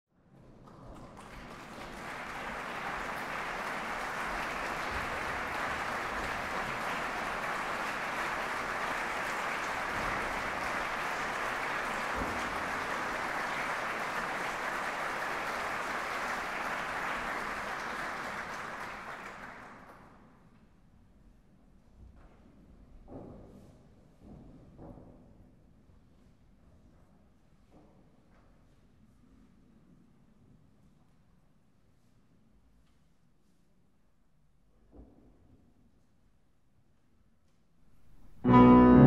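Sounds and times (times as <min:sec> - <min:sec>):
audience applauding: 0:00.7 - 0:20.0, 0:38.1 - 0:39.0.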